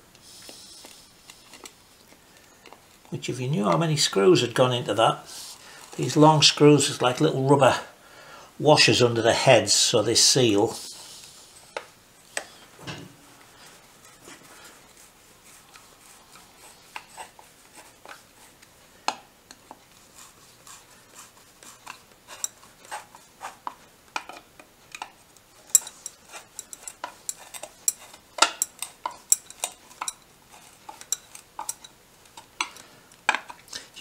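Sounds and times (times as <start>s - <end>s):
screws and screwdriver clinking on metal: 24.2s - 33.6s.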